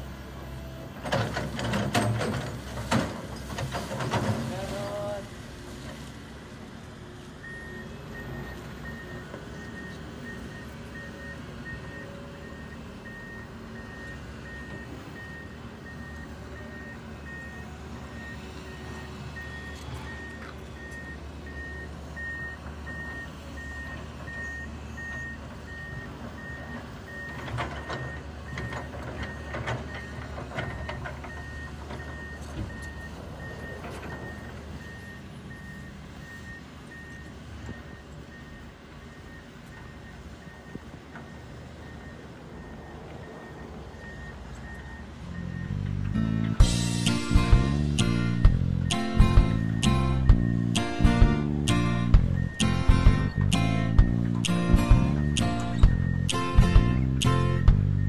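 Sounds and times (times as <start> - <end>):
diesel engine running: 0.0 - 58.0
metal clanks and knocks: 1.0 - 4.5
travel alarm beeping: 7.4 - 40.8, 41.9 - 58.0.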